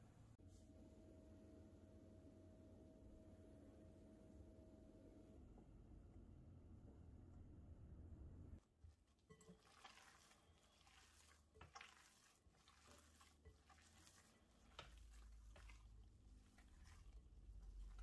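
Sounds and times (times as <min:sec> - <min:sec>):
low steady hum: 0:00.0 - 0:09.0
wet squishing of minced meat: 0:08.6 - 0:18.0.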